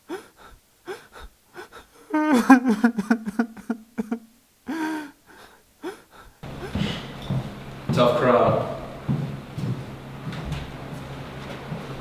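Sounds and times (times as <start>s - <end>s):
young man sobbing: 0.0s - 7.1s.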